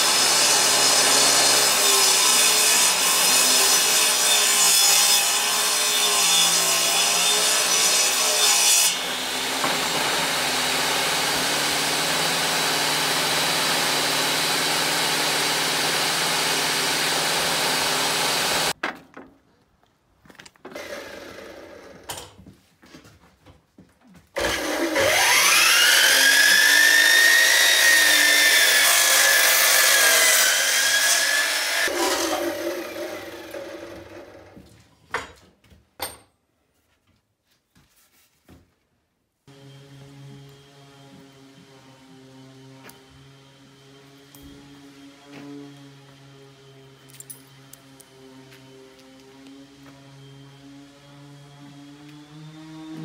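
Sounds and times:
table saw cutting wood: 0.0s - 18.8s, 20.7s - 22.2s, 24.4s - 34.6s, 39.5s - 53.0s
miter saw whining: 24.4s - 34.6s.

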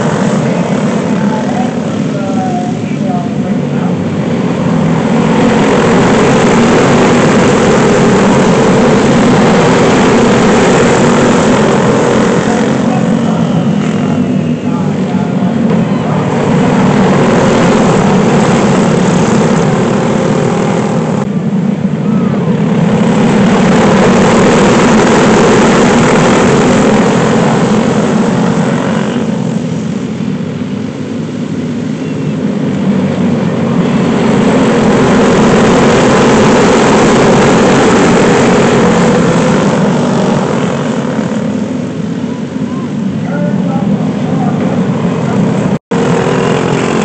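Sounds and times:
go-kart engine running hard: 0.0s - 47.0s
wind rush on microphone: 0.0s - 47.0s.

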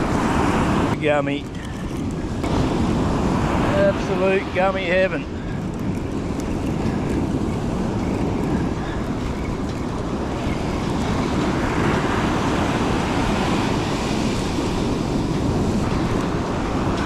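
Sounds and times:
breaking surf: 0.0s - 17.0s
wind buffeting microphone: 0.0s - 17.0s.

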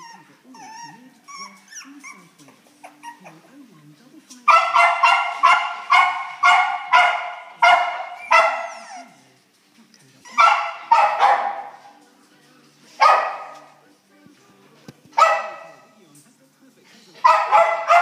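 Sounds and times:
puppy barking in high yaps: 4.5s - 9.0s, 10.4s - 11.8s, 17.2s - 18.0s.

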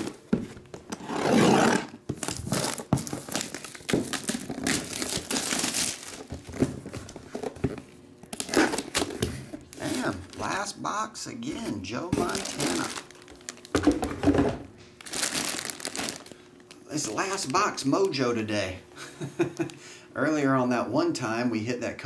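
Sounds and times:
plastic shrink wrap crinkling: 2.1s - 10.6s, 11.6s - 14.1s, 15.0s - 18.2s.

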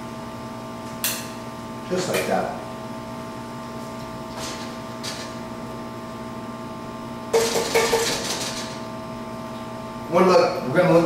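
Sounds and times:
kitchen hum: 0.8s - 11.0s
cookware clattering on stovetop: 7.4s - 8.4s.

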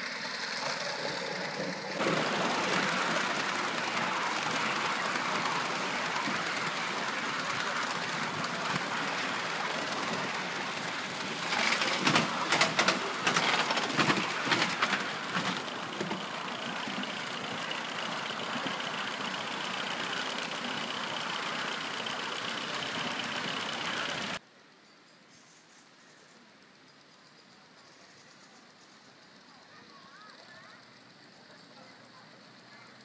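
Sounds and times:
model steam train hissing rumble: 0.0s - 24.4s, 25.3s - 33.0s
rapid clicking and knocking: 0.4s - 24.4s.

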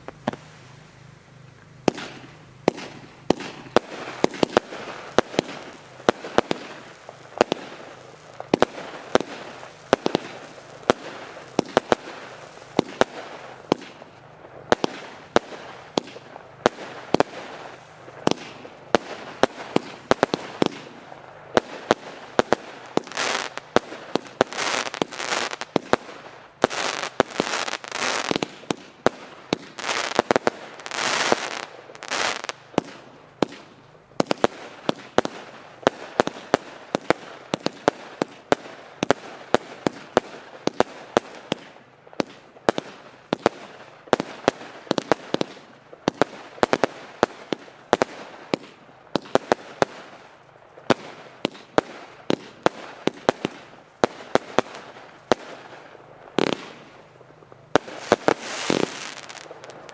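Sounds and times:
fireworks crackling: 0.0s - 59.9s
fireworks bangs: 1.8s - 59.9s.

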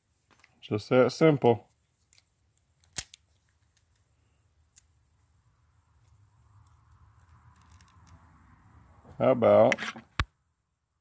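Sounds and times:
sharp metallic click: 2.1s - 3.2s.

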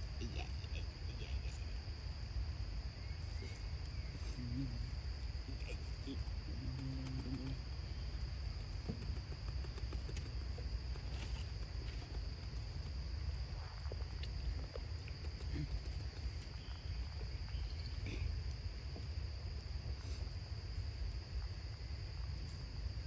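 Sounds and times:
high-pitched insect drone: 0.0s - 18.3s.

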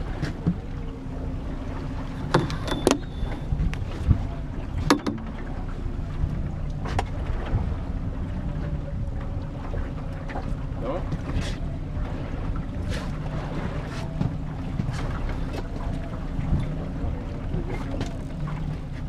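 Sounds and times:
outboard motor running: 0.0s - 19.0s
sharp knocks on boat: 2.2s - 5.6s, 12.8s - 16.8s, 17.4s - 19.0s.

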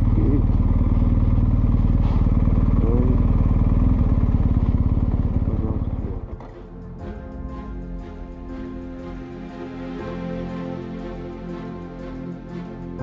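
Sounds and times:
motorcycle engine running: 0.0s - 6.8s
music: 5.3s - 13.0s.

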